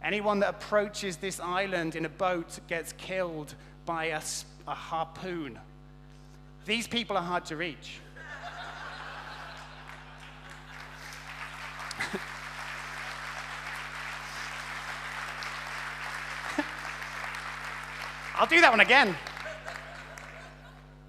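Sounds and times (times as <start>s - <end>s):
audience applauding: 8.9s - 20.7s.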